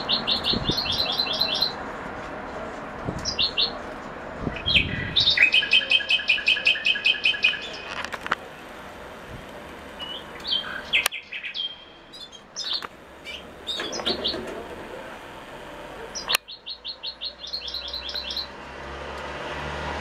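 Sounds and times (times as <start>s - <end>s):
finches chirping: 10.0s - 14.5s, 16.1s - 18.5s.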